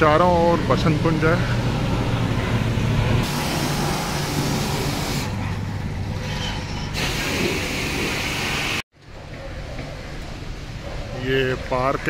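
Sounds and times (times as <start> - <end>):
low motor hum: 0.0 - 7.0
loud hissing: 3.2 - 5.4, 7.0 - 8.8.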